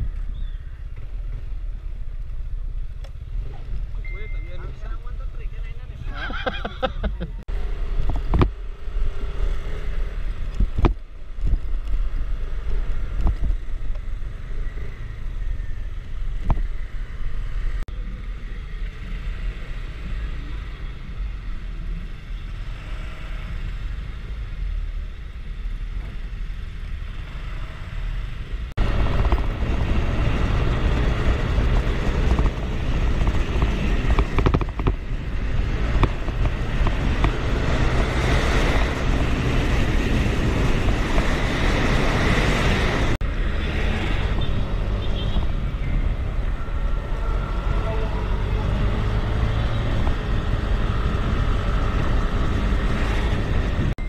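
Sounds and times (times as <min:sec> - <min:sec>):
road noise: 0:00.0 - 0:54.0
wind rushing over microphone: 0:26.2 - 0:54.0.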